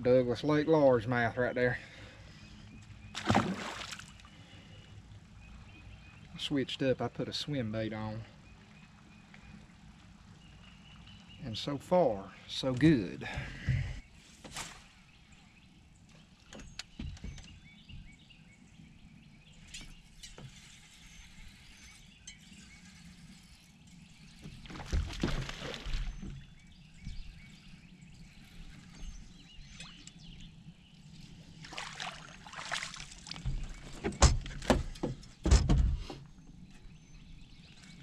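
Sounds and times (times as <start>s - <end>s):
fish splashing at the surface: 3.2s - 4.2s, 31.6s - 33.4s.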